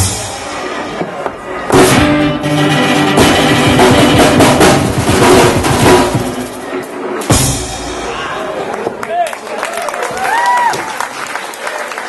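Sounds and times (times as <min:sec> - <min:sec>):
drum hits and cymbal crashes: 0:00.0 - 0:08.3
live band playing loudly: 0:00.0 - 0:08.9.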